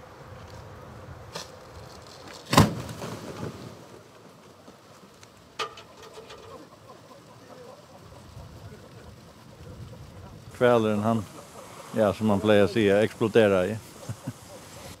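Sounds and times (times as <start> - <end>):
sharp crack: 1.3 - 4.4.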